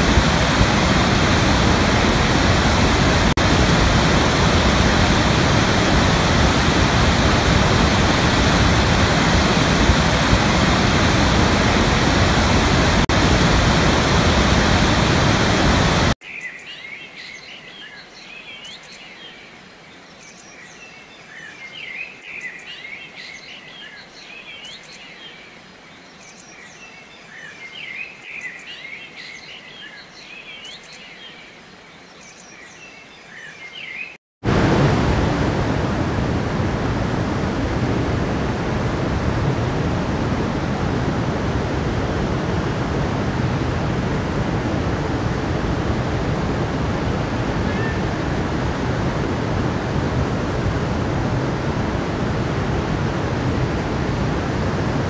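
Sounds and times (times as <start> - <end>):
waterfall rushing: 0.0 - 16.2, 34.5 - 55.0
small birds chirping and singing: 16.2 - 34.2.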